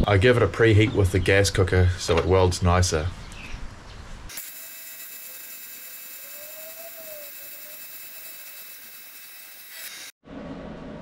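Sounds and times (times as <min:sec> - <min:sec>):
welding arc hiss-buzz: 0:04.3 - 0:10.2
high whistling tones: 0:06.1 - 0:09.7.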